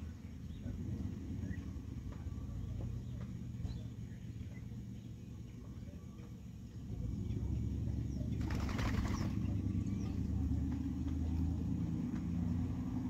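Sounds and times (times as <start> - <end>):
birds wing flapping: 8.3 - 9.8.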